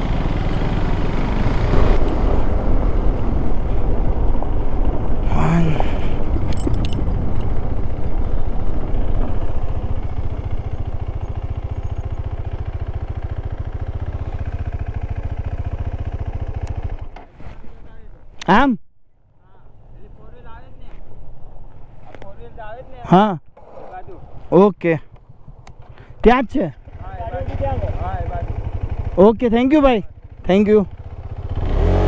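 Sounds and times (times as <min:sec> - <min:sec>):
motorcycle engine running: 0:00.0 - 0:17.4, 0:24.0 - 0:32.0.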